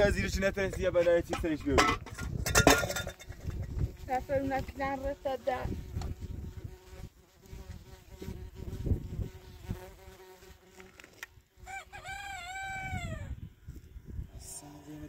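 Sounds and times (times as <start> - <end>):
flies buzzing: 2.8 - 12.6, 13.3 - 15.0
rooster crowing: 11.6 - 13.4.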